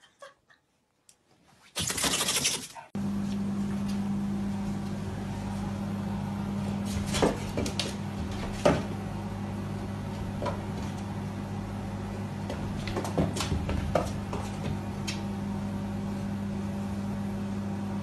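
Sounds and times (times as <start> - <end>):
steady low hum: 2.9 - 18.0.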